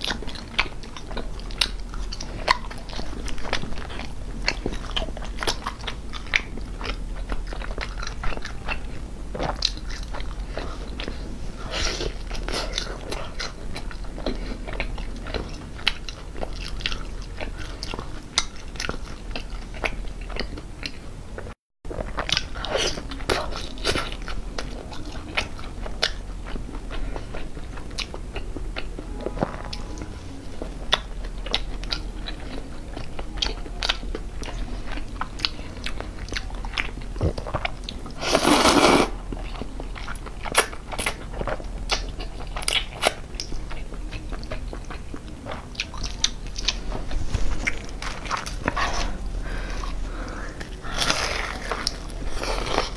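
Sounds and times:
chewing and biting food: 0.0s - 52.9s.

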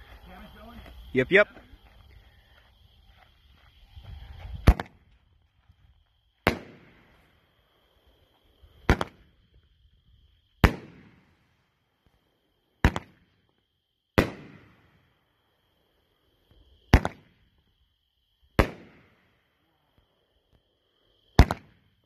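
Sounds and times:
fireworks bangs with echo: 6.4s - 7.3s, 8.8s - 9.4s, 10.6s - 11.4s, 12.8s - 13.3s, 14.2s - 15.0s, 16.9s - 17.4s, 18.6s - 19.2s, 21.4s - 21.9s.

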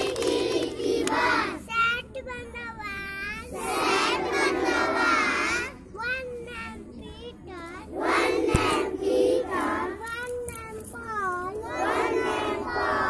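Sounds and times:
children chanting in unison: 0.0s - 1.7s, 3.5s - 5.7s, 7.9s - 10.1s, 11.5s - 13.0s
child singing: 0.0s - 13.0s.

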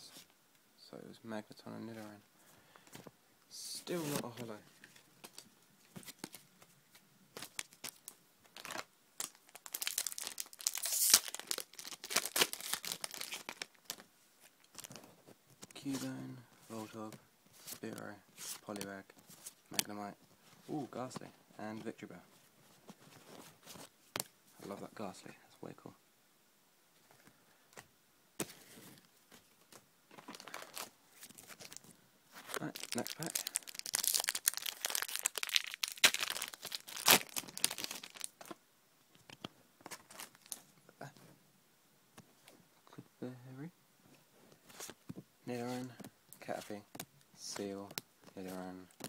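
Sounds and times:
foil wrapper crinkling and tearing: 7.4s - 14.0s, 30.1s - 31.8s, 32.4s - 38.6s, 39.9s - 40.6s
cards rustling and knocking: 28.4s - 38.6s.

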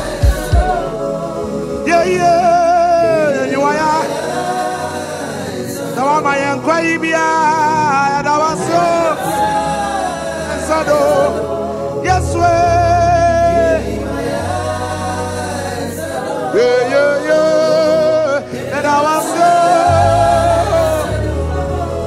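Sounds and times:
bass accompaniment: 0.0s - 1.3s, 19.8s - 22.0s
gospel singing with vibrato: 0.0s - 22.0s.

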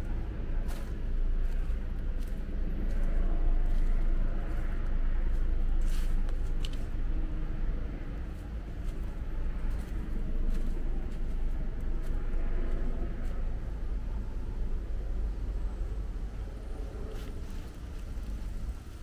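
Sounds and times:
footsteps on gravel: 0.6s - 6.9s, 8.3s - 12.8s.

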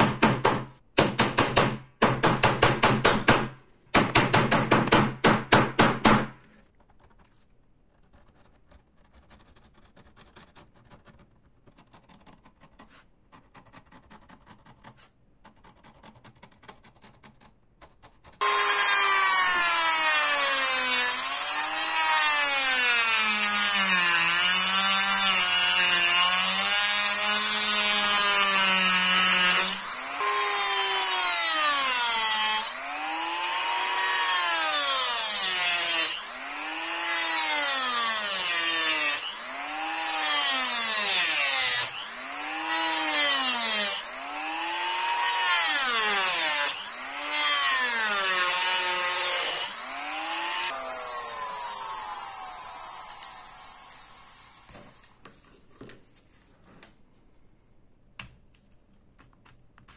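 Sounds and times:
rotary tool cutting disc whine: 41.4s - 54.7s.

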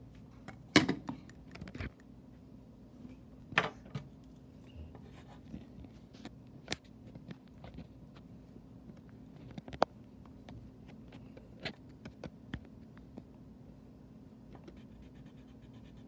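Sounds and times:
pencil scratching on paper: 14.6s - 16.0s.

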